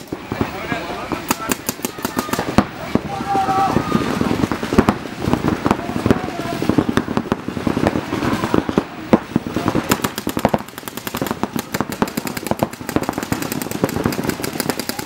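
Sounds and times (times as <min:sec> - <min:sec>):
paintball guns firing: 0:00.0 - 0:04.9, 0:09.6 - 0:15.0.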